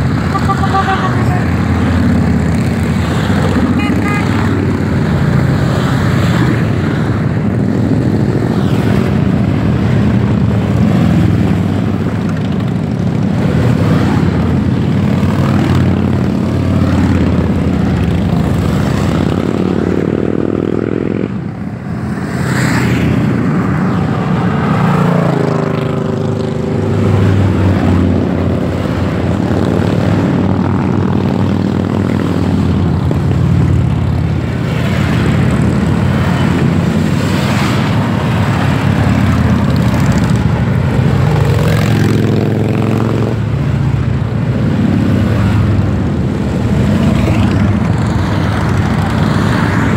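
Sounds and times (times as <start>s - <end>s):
motorcycles riding past: 0.0s - 49.9s.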